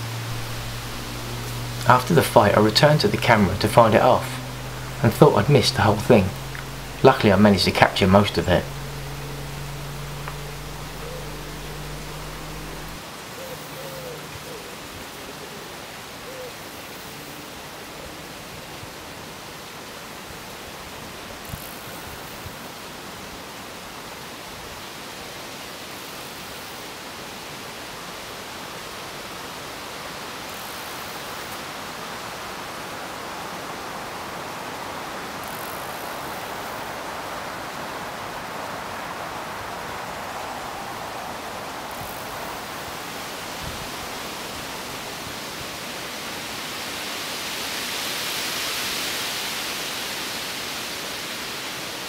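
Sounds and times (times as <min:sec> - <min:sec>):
steady rushing hiss: 0:00.0 - 0:13.3.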